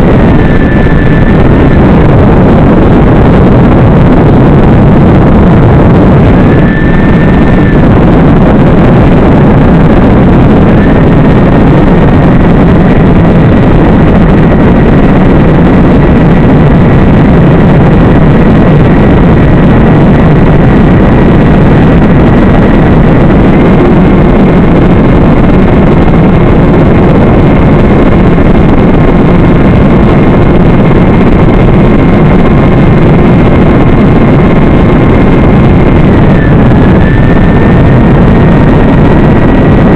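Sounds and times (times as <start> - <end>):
loud rushing noise: 0.0 - 39.9
thin high whine: 0.0 - 39.9.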